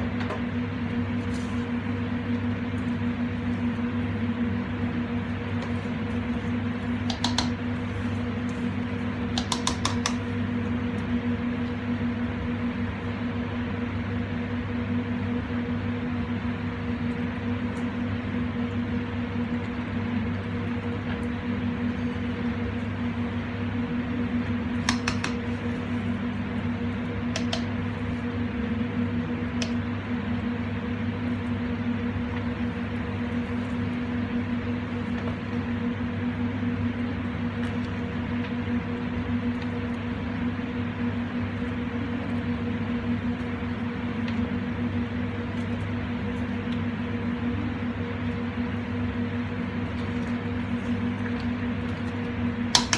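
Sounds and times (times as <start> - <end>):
extractor fan whirring: 0.0 - 52.9
kitchen equipment humming: 0.0 - 52.9
wooden spoon knocking metal pot: 7.1 - 7.5, 9.3 - 10.2, 24.8 - 25.4
wooden spoon ticking in metal pan: 9.4 - 10.2.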